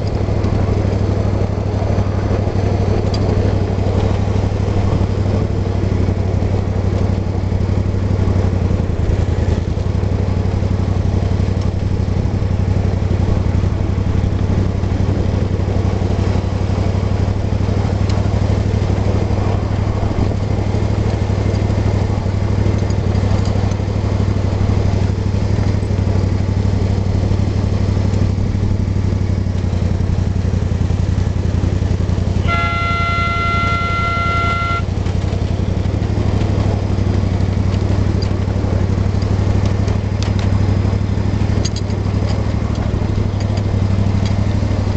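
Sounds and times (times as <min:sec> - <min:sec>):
ride-on locomotive engine drone: 0:00.0 - 0:44.9
locomotive horn blast: 0:32.3 - 0:35.0.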